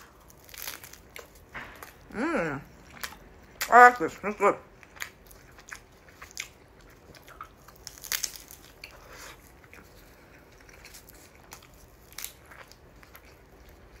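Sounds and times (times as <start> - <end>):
seaweed crunching: 0.0 - 2.0, 4.9 - 13.3
chewing mouth sounds: 4.7 - 14.0.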